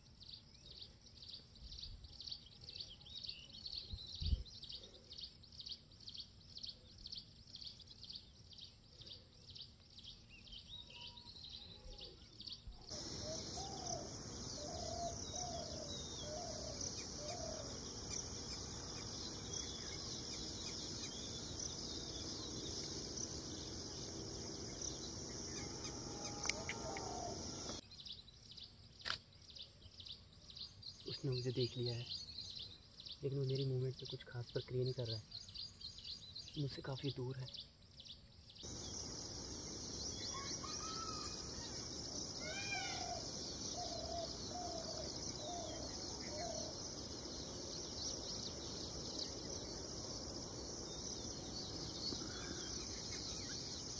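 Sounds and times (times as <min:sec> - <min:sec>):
hissy forest background: 0:00.0 - 0:53.9
lower bird calls: 0:10.8 - 0:27.8, 0:38.7 - 0:53.9.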